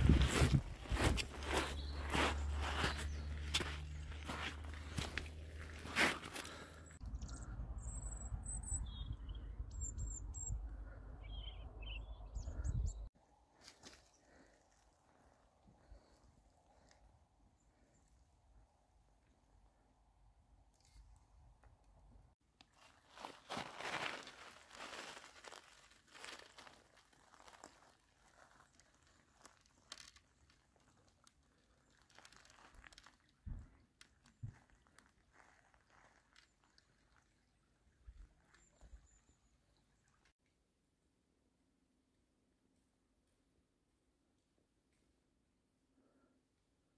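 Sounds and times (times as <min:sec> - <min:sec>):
footsteps crunching on shingle: 0:00.0 - 0:06.8, 0:22.8 - 0:30.2
small songbird chirping: 0:01.0 - 0:04.6, 0:06.9 - 0:13.1, 0:35.8 - 0:40.3.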